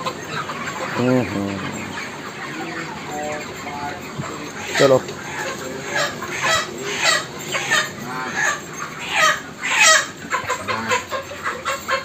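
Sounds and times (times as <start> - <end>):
chickens clucking and squawking: 0.0 - 12.0.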